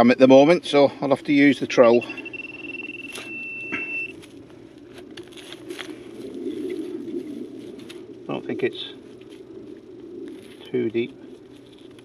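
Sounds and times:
pinpointer high tone: 0:01.7 - 0:04.2
soil crunches and clicks: 0:10.5 - 0:12.0.

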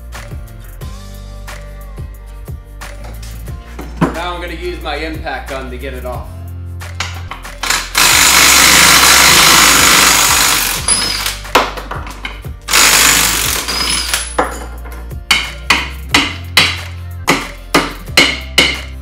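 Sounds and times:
impact gun hammering: 0:15.3 - 0:18.9.

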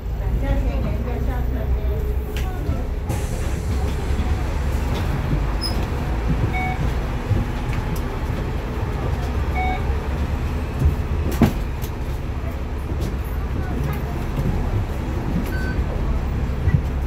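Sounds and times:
bus engine droning: 0:00.0 - 0:17.0
short beeps: 0:06.5 - 0:06.8, 0:09.5 - 0:09.8.

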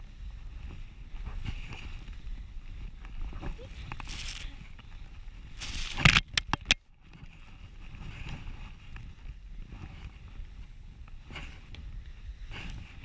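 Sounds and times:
skis ploughing through snow: 0:00.0 - 0:06.2, 0:07.1 - 0:13.0
snow spraying on camera: 0:03.6 - 0:04.5, 0:05.5 - 0:06.1
ski swishes: 0:05.5 - 0:06.1.

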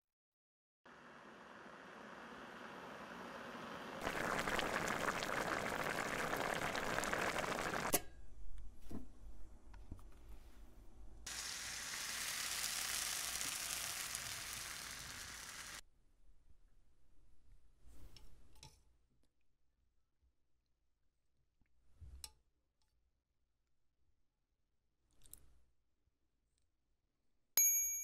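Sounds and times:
broth bubbling in a pot: 0:00.9 - 0:07.9, 0:11.3 - 0:15.8
food sizzling in a frying pan: 0:00.9 - 0:07.9, 0:11.3 - 0:15.8.

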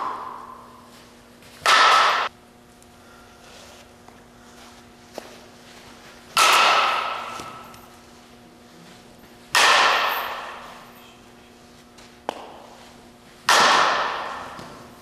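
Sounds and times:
softball bat striking ball: 0:00.0 - 0:00.6, 0:01.6 - 0:02.3, 0:06.3 - 0:07.8, 0:09.5 - 0:10.7, 0:12.2 - 0:12.8, 0:13.4 - 0:14.9.

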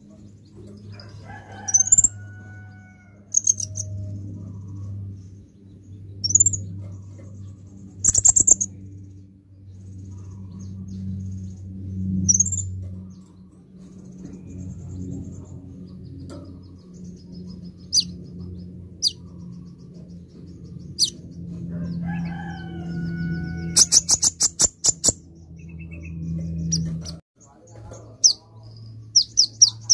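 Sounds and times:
sunbird chirping: 0:05.6 - 0:06.7, 0:07.8 - 0:09.1, 0:17.0 - 0:21.2, 0:23.7 - 0:29.9.

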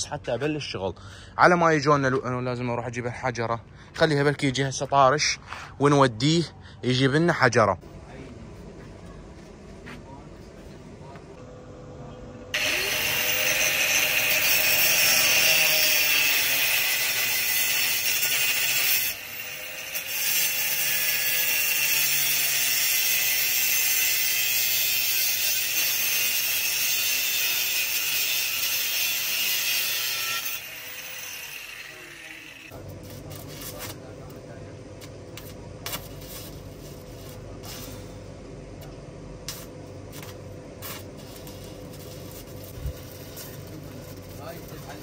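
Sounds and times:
angle grinder cutting metal: 0:12.6 - 0:32.8.

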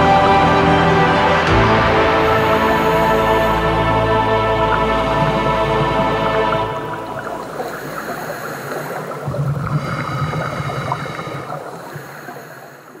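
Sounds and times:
music chord: 0:00.0 - 0:07.4
sea water washing and lapping: 0:01.2 - 0:13.0.

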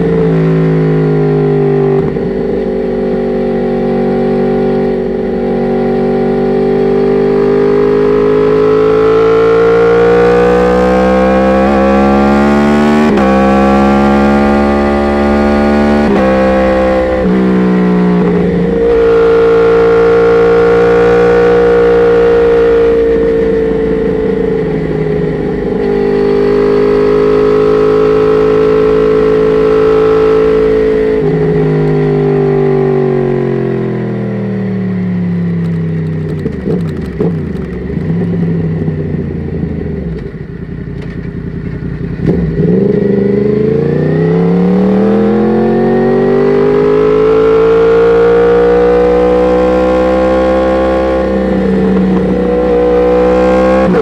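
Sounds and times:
motorcycle engine revving: 0:00.0 - 0:54.0
exhaust cracks: 0:35.6 - 0:38.9.

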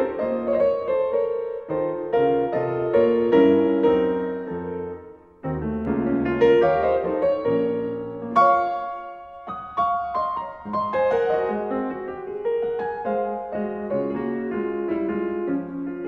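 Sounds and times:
slow piano music: 0:00.0 - 0:16.0.

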